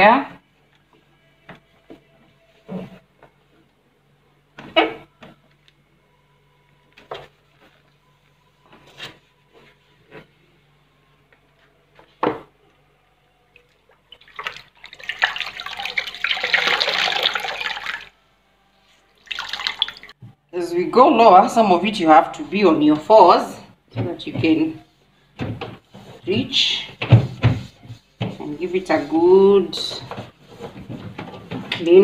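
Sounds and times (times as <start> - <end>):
water running: 13.6 - 18.2, 19.2 - 20.2.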